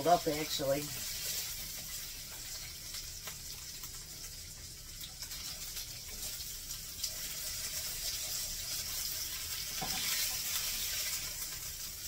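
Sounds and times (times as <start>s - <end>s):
meat patties sizzling in oil: 0.0s - 12.0s
spatula scraping a pan: 7.1s - 11.5s.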